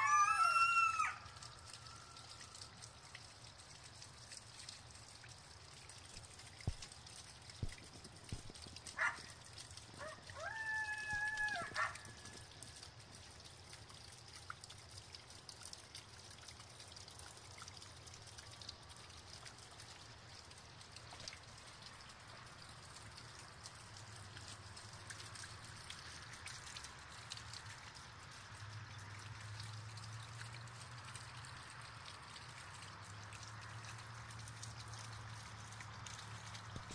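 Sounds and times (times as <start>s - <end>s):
coyote howling: 10.0s - 12.0s.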